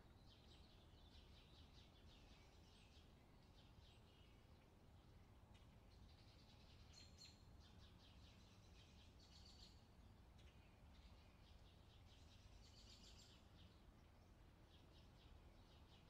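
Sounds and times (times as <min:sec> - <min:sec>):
sparrows chirping: 0:05.5 - 0:16.0.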